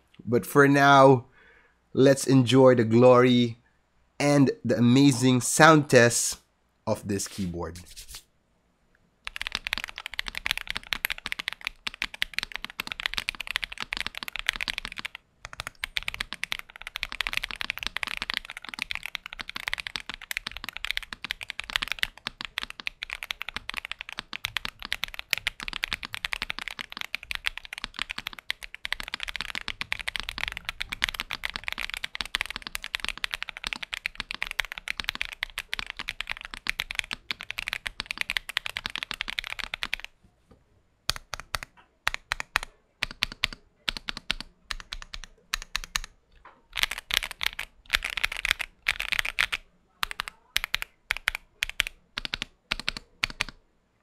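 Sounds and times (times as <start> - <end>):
mechanical keyboard typing: 9.2 - 40.1, 41.1 - 46.1, 46.7 - 53.6.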